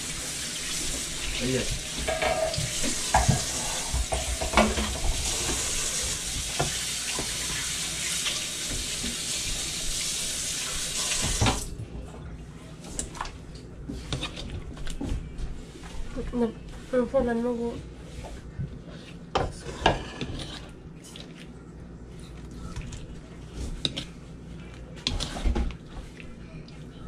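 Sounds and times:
running tap water: 0:00.0 - 0:11.8.

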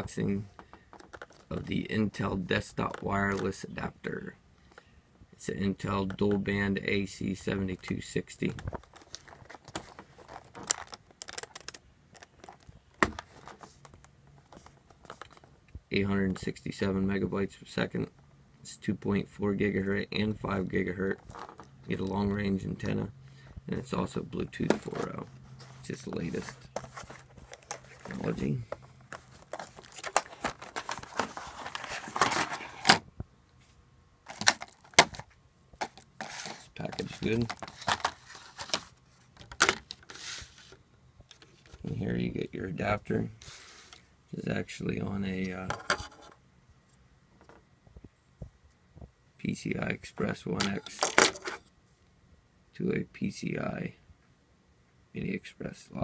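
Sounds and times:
packaging rustling and crinkling: 0:08.5 - 0:15.5, 0:24.8 - 0:33.0, 0:34.3 - 0:40.8.

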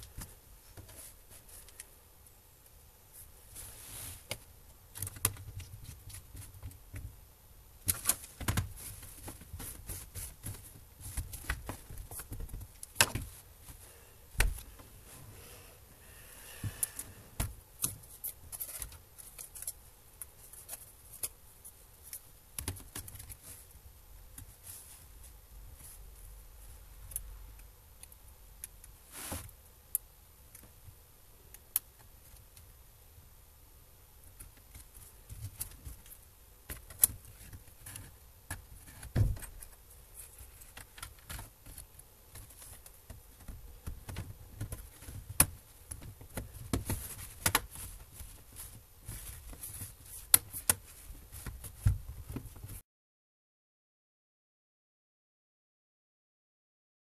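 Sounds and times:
small clicks and taps on plastic: 0:22.1 - 0:23.4, 0:40.6 - 0:48.3.

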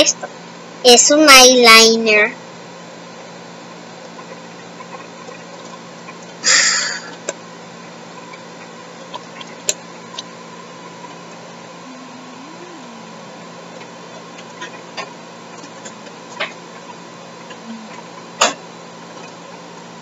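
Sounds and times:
steady low hum: 0:11.7 - 0:14.0, 0:15.6 - 0:19.2.

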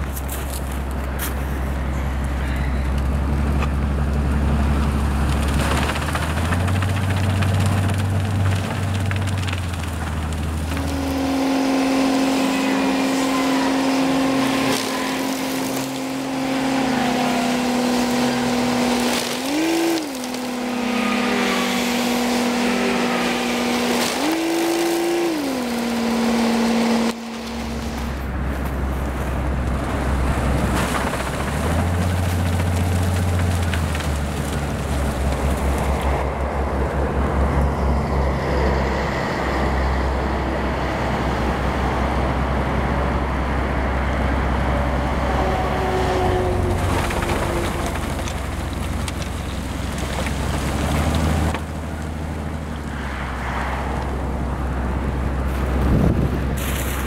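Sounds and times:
deep machinery drone: 0:00.0 - 0:57.0.

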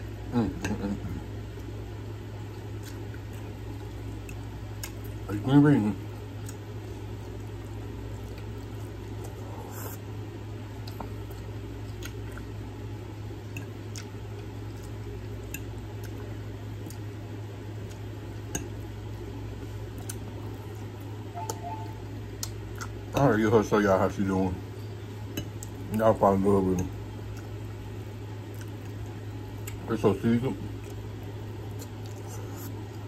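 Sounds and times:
steady low hum: 0:00.0 - 0:33.0
chewing food: 0:02.3 - 0:05.3, 0:06.0 - 0:10.0, 0:10.6 - 0:21.2, 0:22.3 - 0:23.3, 0:25.3 - 0:26.0, 0:26.6 - 0:30.0, 0:30.6 - 0:33.0.

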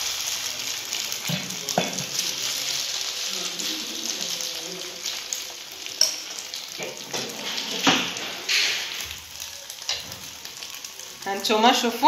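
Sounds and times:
mixture sizzling in hot oil: 0:00.0 - 0:12.0.

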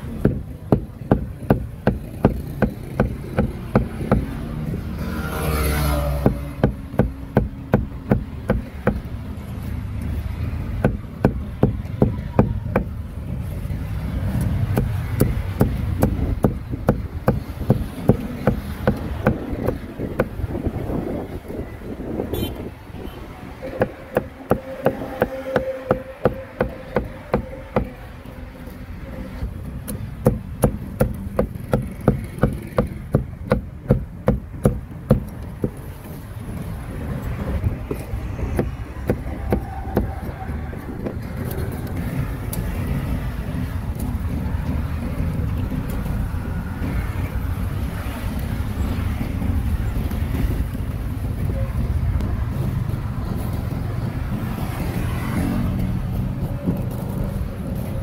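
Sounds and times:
cleaver chopping meat: 0:38.4 - 0:40.2.

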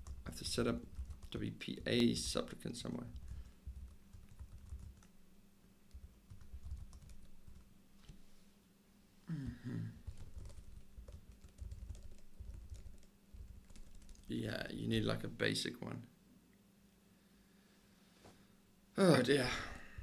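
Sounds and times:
laptop keyboard typing: 0:00.0 - 0:01.4, 0:03.2 - 0:05.2, 0:05.9 - 0:07.7, 0:10.0 - 0:14.3.

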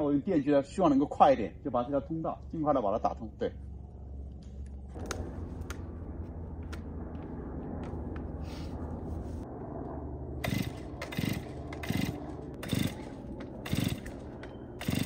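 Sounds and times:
chainsaw engine turning over: 0:10.4 - 0:15.0.

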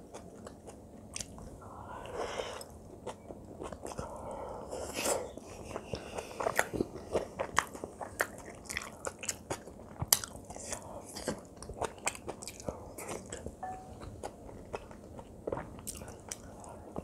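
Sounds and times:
wet chewing: 0:02.5 - 0:17.0.

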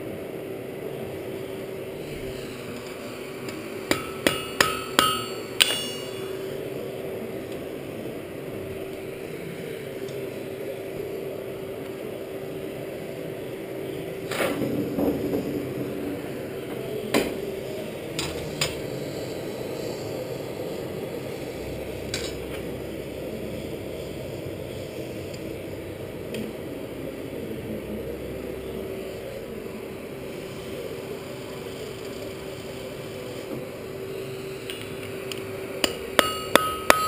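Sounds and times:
metal clanks of tongs and steel: 0:04.0 - 0:06.4.

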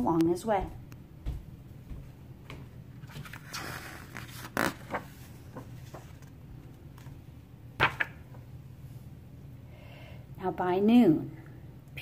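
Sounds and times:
paper page turning: 0:03.0 - 0:07.2, 0:07.8 - 0:08.4.

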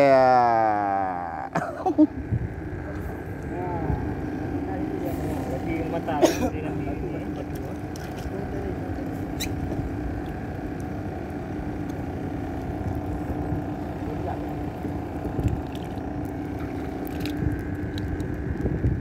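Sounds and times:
boat engine humming: 0:00.0 - 0:19.0
wind rumbling on microphone: 0:02.2 - 0:05.7, 0:12.6 - 0:19.0.

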